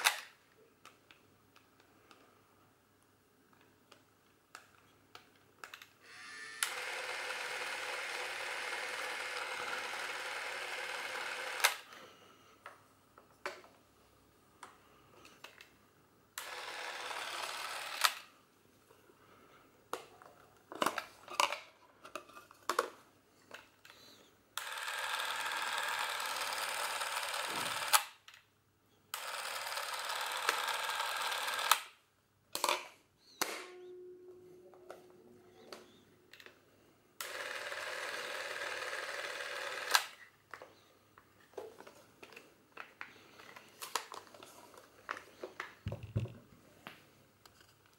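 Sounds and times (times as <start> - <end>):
camera film motor whirring: 6.1 - 11.9, 16.4 - 18.2, 24.6 - 28.1, 29.1 - 31.9, 37.2 - 40.2.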